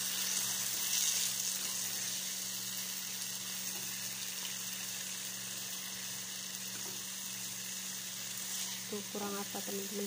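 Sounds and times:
vegetables sizzling in a frying pan: 0.0s - 10.0s.

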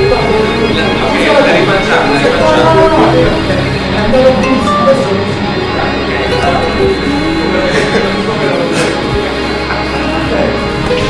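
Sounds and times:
upright piano playing: 0.0s - 11.0s.

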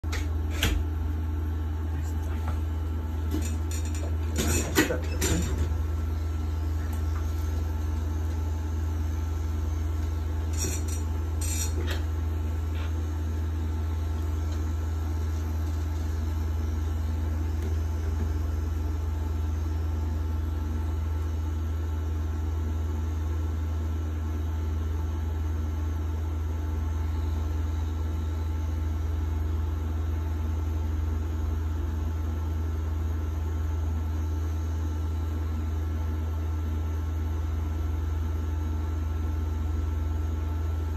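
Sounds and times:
tattoo machine humming: 3.1s - 21.5s.

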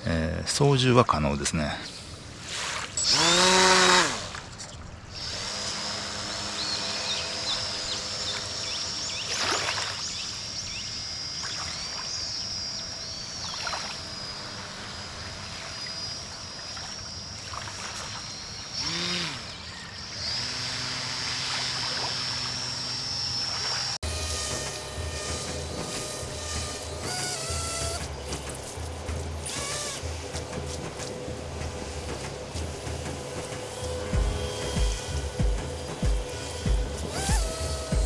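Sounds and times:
small electric motor whining: 1.9s - 38.0s.

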